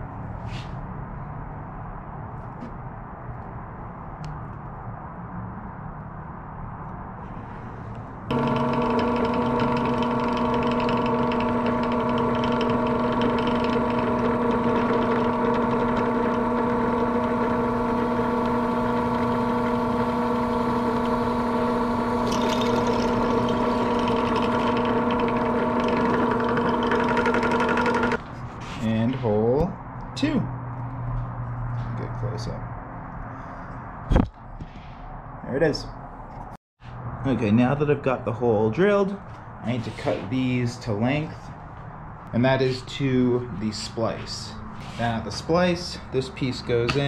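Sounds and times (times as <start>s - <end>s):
drill press drilling: 8.3s - 28.2s.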